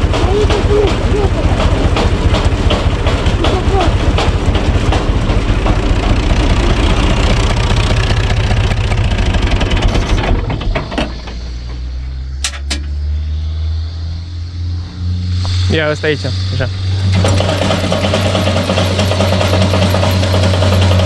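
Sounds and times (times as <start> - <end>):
log splitter rattling: 0.0 - 11.9, 17.0 - 21.0
tractor diesel engine running: 0.0 - 21.0.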